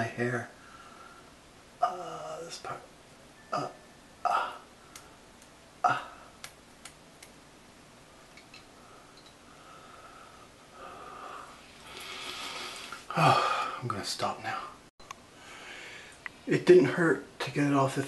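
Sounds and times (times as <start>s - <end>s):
person grunting: 3.6s - 4.6s, 5.8s - 6.3s, 13.1s - 13.7s.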